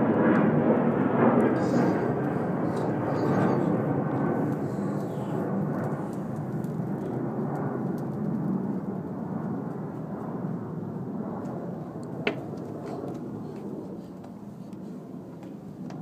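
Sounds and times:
distant engine rumble: 0:00.0 - 0:09.2.

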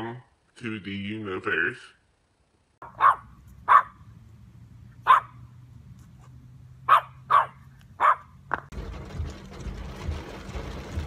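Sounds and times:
dog barking: 0:02.8 - 0:04.0, 0:05.0 - 0:05.5, 0:06.9 - 0:08.3.

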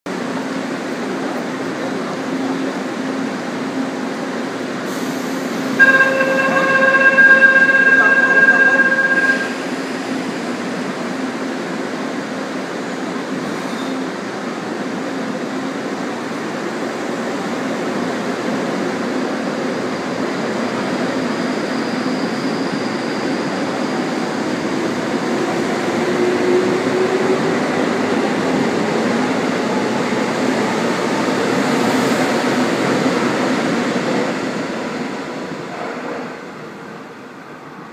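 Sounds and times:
electric train pulling away: 0:04.6 - 0:10.8
door closing warning tone: 0:05.8 - 0:09.7.

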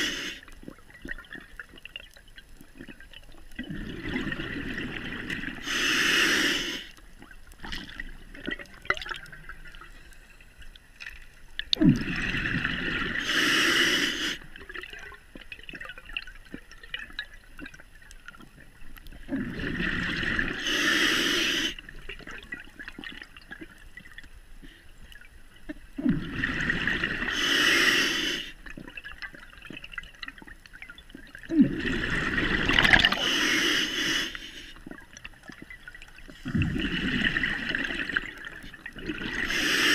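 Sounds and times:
bubbling underwater exhalations: 0:03.6 - 0:06.8, 0:07.7 - 0:09.8, 0:11.7 - 0:14.0, 0:19.2 - 0:23.2, 0:26.0 - 0:29.0, 0:31.3 - 0:33.5, 0:36.3 - 0:39.9.

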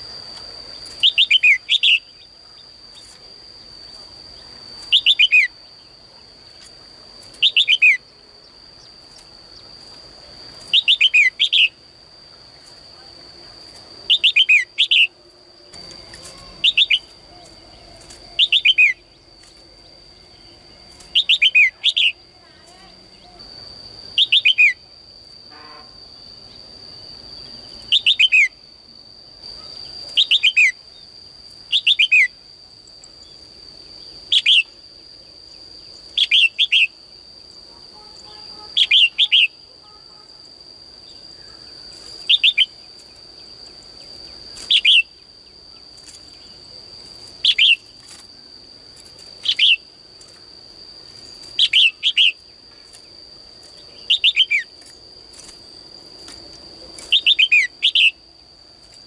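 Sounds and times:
bulbul calling: 0:01.0 - 0:02.3, 0:04.9 - 0:05.6, 0:07.4 - 0:08.0, 0:10.7 - 0:11.8, 0:14.1 - 0:15.2, 0:16.2 - 0:19.1, 0:21.0 - 0:22.2, 0:24.2 - 0:24.8, 0:38.0 - 0:39.6.

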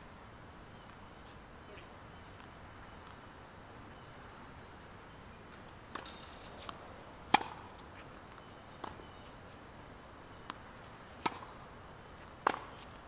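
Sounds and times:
ball bouncing on hard court: 0:05.9 - 0:07.6, 0:12.4 - 0:12.7
rackets striking tennis ball: 0:05.9 - 0:08.1, 0:11.2 - 0:11.6, 0:12.4 - 0:12.9.

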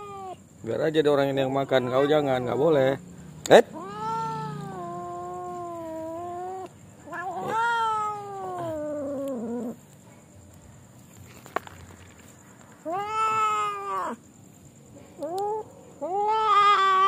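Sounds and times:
cat grumbling: 0:03.7 - 0:09.8.

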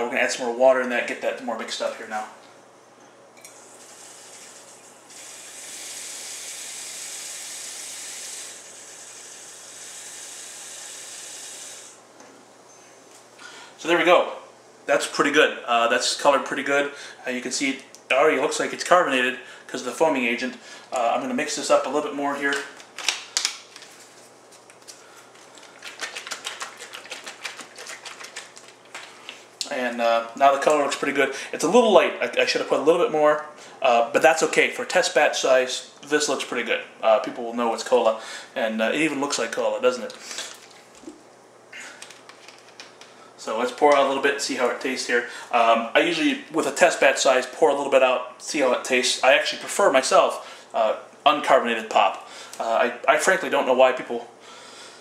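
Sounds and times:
faucet filling plastic bottle: 0:03.8 - 0:11.8
plastic bottle shaken sloshing: 0:25.3 - 0:29.4.

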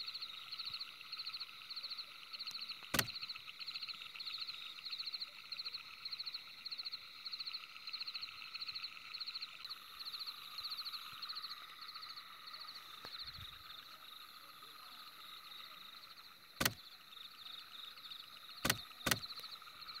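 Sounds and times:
sharp clicks: 0:02.8 - 0:03.2, 0:16.6 - 0:16.9, 0:18.6 - 0:19.5.

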